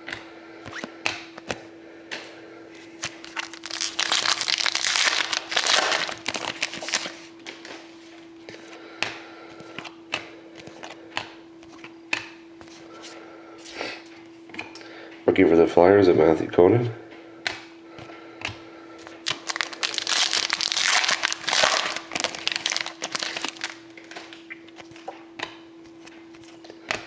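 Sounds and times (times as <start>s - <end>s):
faint steady hum: 0.0s - 27.0s
crinkling plastic: 3.0s - 7.3s, 19.2s - 24.4s.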